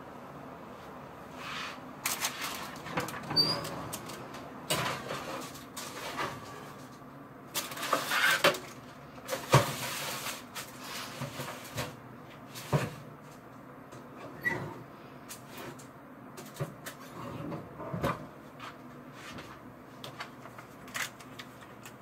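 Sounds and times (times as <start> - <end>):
metal baking trays clattering: 2.1 - 6.9, 7.6 - 12.0.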